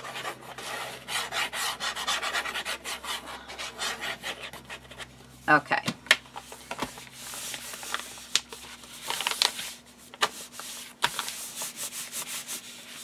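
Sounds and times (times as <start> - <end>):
paper clicks and crackles: 7.6 - 9.6
hands rubbing paper: 10.5 - 13.0.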